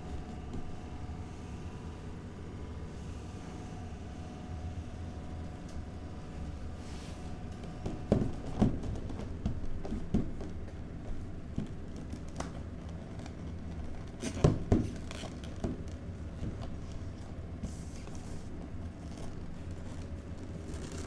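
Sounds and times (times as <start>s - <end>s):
low room hum: 0.0s - 21.0s
cardboard box knocks and thumps: 7.8s - 10.6s.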